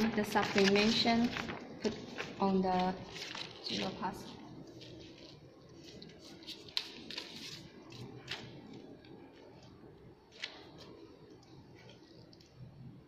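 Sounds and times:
paper rustling and crackling: 0.0s - 9.7s.

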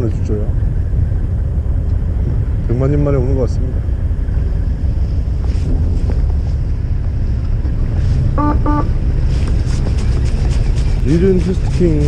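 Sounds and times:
boat engine rumbling: 0.0s - 12.0s
wind on microphone: 0.0s - 12.0s
short beeps: 8.4s - 8.9s.

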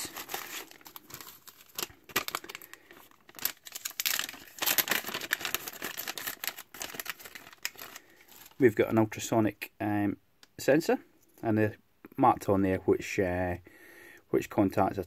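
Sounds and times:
plastic bags crinkling: 0.0s - 8.8s.

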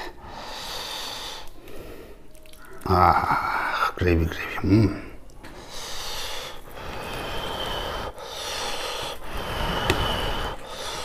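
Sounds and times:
man breathing heavily through nose: 0.0s - 2.3s, 5.5s - 11.0s.

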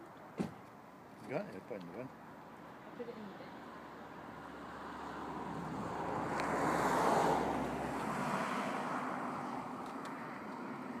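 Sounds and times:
vehicle passing close by: 3.5s - 11.0s.

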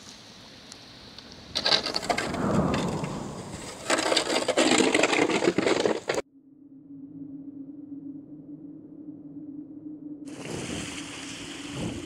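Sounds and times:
wind gusting across microphone: 1.2s - 5.4s, 10.2s - 12.0s.

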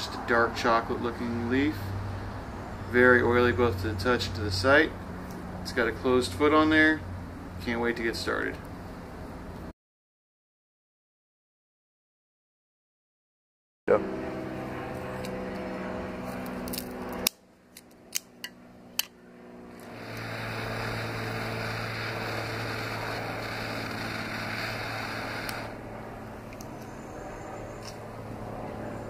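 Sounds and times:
steady low hum: 13.9s - 29.0s
torch lighter ignition clicks: 16.4s - 19.2s, 19.8s - 25.7s, 26.5s - 26.9s
jet flame hissing: 19.8s - 25.9s.

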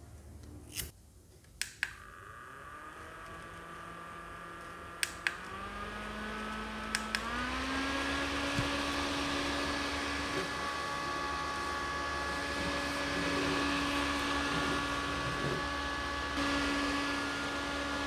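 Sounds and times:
fan motor whine and airflow: 1.6s - 18.0s
fan button clicks: 5.0s - 5.5s, 6.9s - 7.3s.

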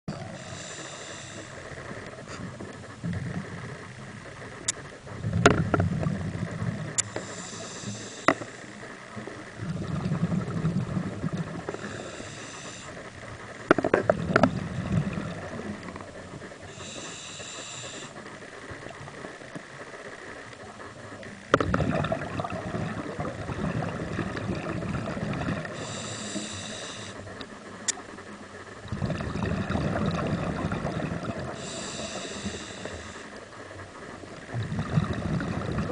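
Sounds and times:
hissing inhale through regulator: 0.2s - 2.6s, 6.9s - 9.0s, 11.5s - 13.8s, 16.5s - 18.4s, 24.7s - 27.9s, 31.3s - 33.8s
bubbling exhale underwater: 9.6s - 12.4s, 21.5s - 26.7s, 28.8s - 32.5s, 34.5s - 35.9s.

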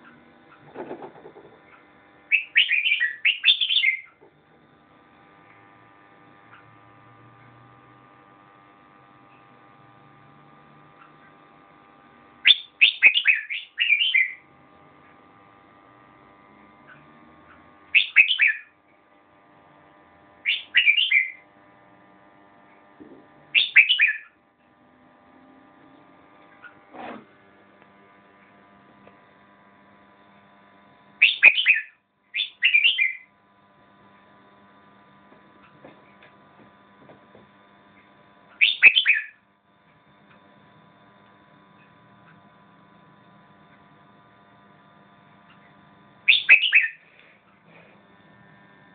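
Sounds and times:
faint electrical hum: 0.0s - 48.9s
bird singing falling notes: 2.3s - 4.1s.

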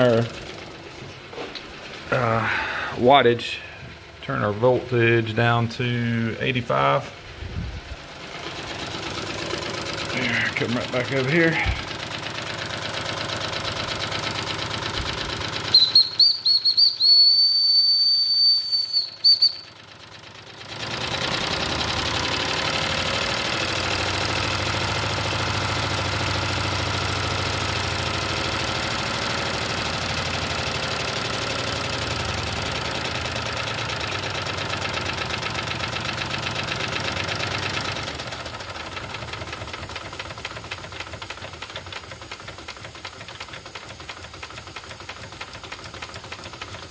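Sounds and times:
steam whistle: 15.7s - 19.7s.

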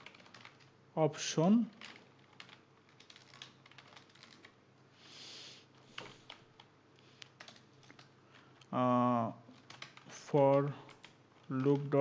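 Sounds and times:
keyboard typing: 0.0s - 0.8s, 1.7s - 4.6s, 5.8s - 8.7s, 9.5s - 12.0s.

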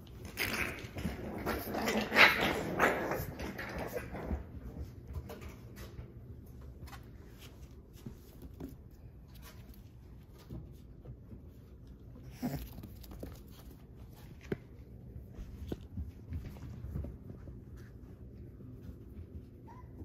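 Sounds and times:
puppies scuffling and paw patter: 0.0s - 20.0s
puppy noises: 0.2s - 4.9s, 11.8s - 14.5s, 19.2s - 20.0s.

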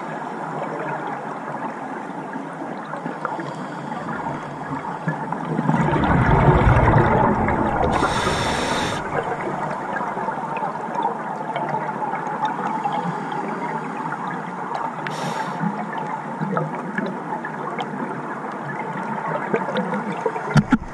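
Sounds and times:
faint steady crackle: 0.5s - 20.9s
diver exhaling bubbles: 3.6s - 10.5s
regulator inhalation hiss: 7.9s - 9.1s, 15.1s - 15.6s.

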